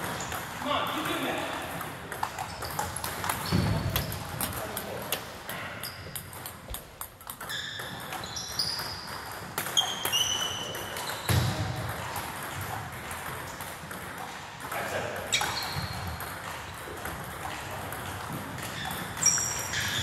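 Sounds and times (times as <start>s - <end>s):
table tennis balls clicking: 0.0s - 20.0s
short high squeaks: 7.4s - 9.1s, 9.7s - 11.3s, 18.8s - 20.0s.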